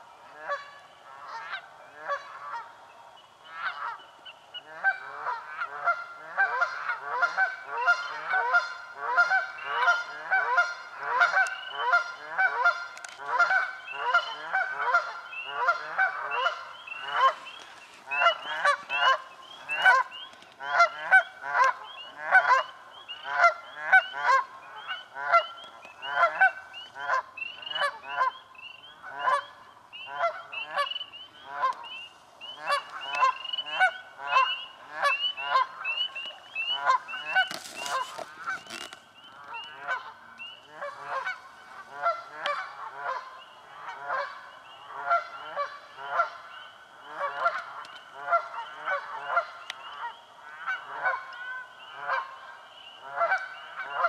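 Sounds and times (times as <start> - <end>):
geese honking: 0.2 - 2.8, 3.4 - 54.0.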